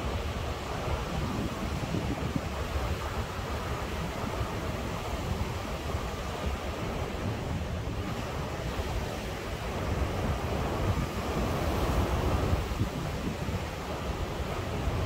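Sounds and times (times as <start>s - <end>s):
ocean surf washing ashore: 0.0s - 15.0s
wind buffeting microphone: 0.0s - 15.0s.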